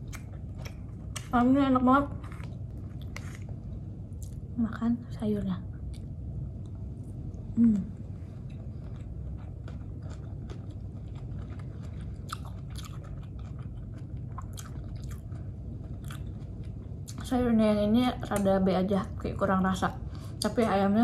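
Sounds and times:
chewing crunchy vegetables: 0.0s - 1.4s, 2.0s - 3.6s, 8.4s - 17.3s
person humming: 7.6s - 8.0s.

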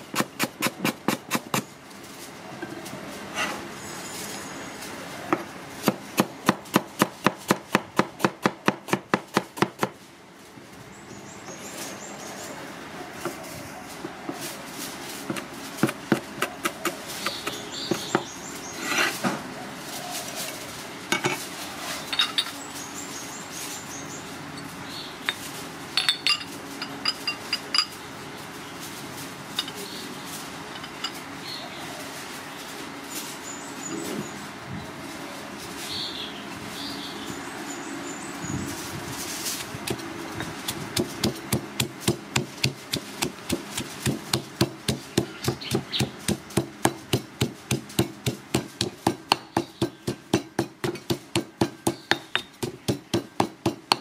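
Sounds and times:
pestle pounding in stone mortar: 0.0s - 1.7s, 5.8s - 10.0s, 15.3s - 18.3s, 40.7s - 54.0s
cleaver chopping on cutting board: 41.0s - 54.0s.

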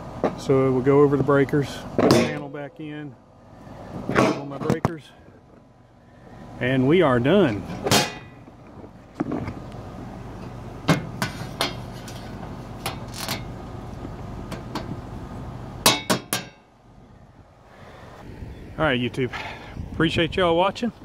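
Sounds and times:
metal panel cover clicks and knocks: 7.7s - 8.3s, 15.8s - 16.6s
sharp metal clanks: 7.7s - 8.4s, 15.8s - 16.7s.

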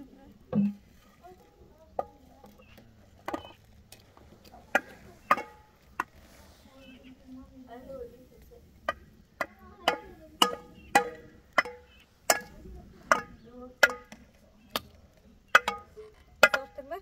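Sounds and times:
stick knocking on metal pots: 0.5s - 3.6s, 4.6s - 6.2s, 8.8s - 17.0s.

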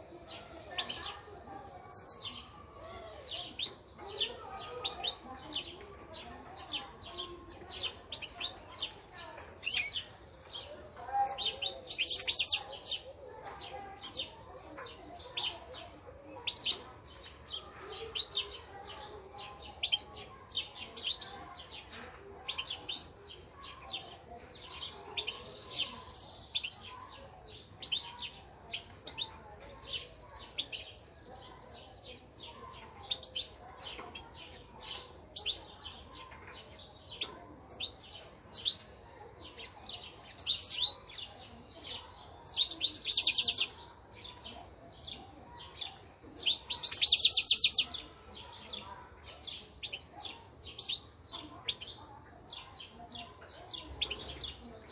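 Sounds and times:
songbirds chirping: 0.0s - 54.9s
bird trill: 0.3s - 13.0s.

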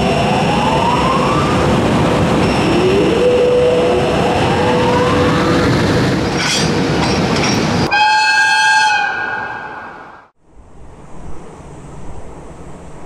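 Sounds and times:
freight train running past: 0.0s - 13.0s
train horn: 7.9s - 10.1s.

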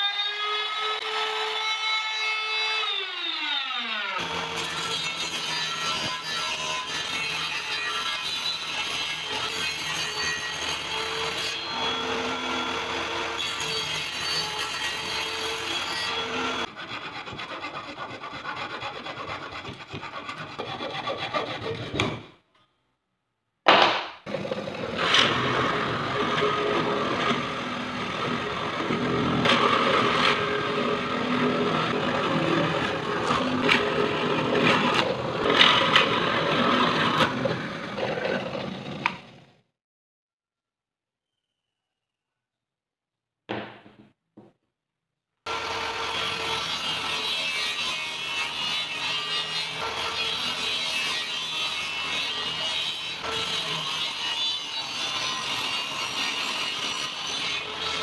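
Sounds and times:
table saw cutting plywood: 0.0s - 22.4s, 24.3s - 39.6s, 45.5s - 58.0s
hand saw rasping through plywood: 8.6s - 22.3s, 24.3s - 39.2s.

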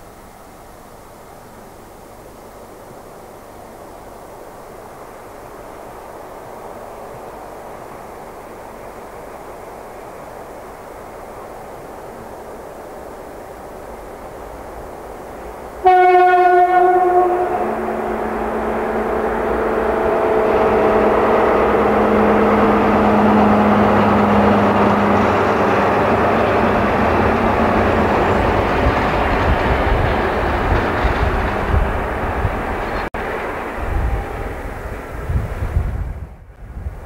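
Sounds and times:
locomotive engine running past: 0.0s - 36.3s
locomotive horn: 15.8s - 28.6s.

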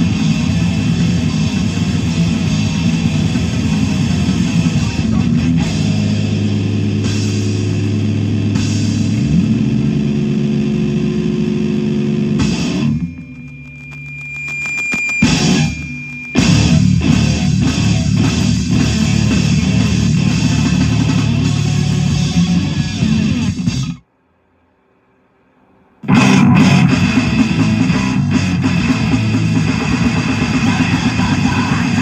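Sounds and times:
heavy rock band playing: 0.0s - 24.0s, 26.0s - 32.0s
high steady ringing tone: 12.4s - 18.0s.

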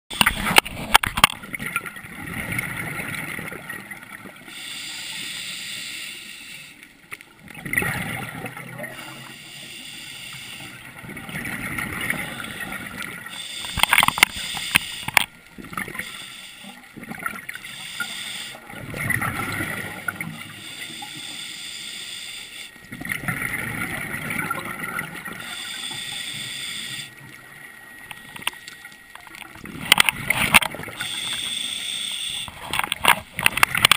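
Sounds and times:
regulator inhale hiss: 4.5s - 6.9s, 9.0s - 10.8s, 13.3s - 15.2s, 15.9s - 16.8s, 17.6s - 18.6s, 20.4s - 22.8s, 25.4s - 27.2s, 31.0s - 32.6s
exhaled bubbles rushing: 7.5s - 8.8s, 18.7s - 20.4s, 22.9s - 25.4s.

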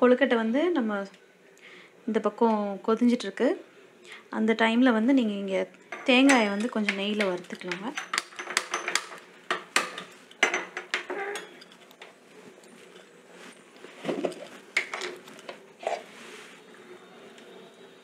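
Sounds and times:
metal cookware clinking: 5.9s - 12.0s.

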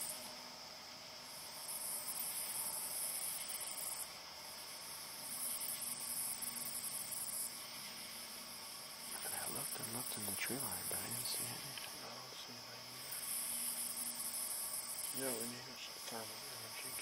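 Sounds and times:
high insect drone: 0.0s - 17.0s
insects trilling: 0.0s - 17.0s.

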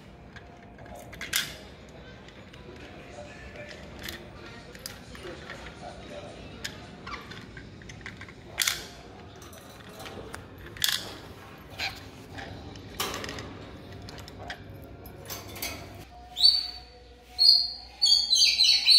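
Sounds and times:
high bird chirping: 16.1s - 18.9s.

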